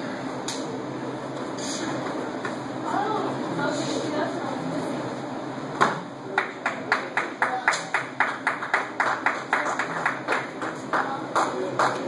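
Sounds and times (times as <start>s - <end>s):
sharp slaps in a gym hall: 5.8s - 12.0s.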